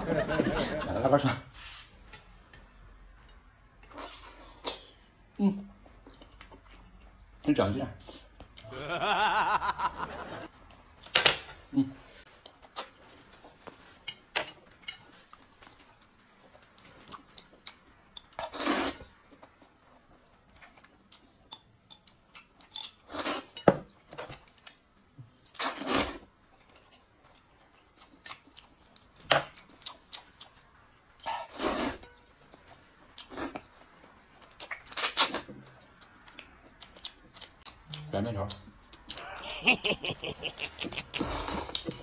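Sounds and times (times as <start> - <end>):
person slurping noodles: 18.5 - 19.0, 31.4 - 32.0, 41.2 - 42.0
faint chewing: 19.2 - 23.3, 24.2 - 39.3.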